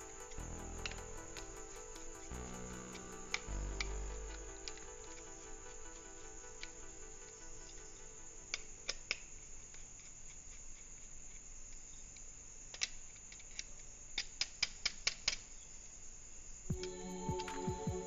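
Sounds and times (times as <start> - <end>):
faint background music: 0.0 - 9.7, 16.7 - 18.0.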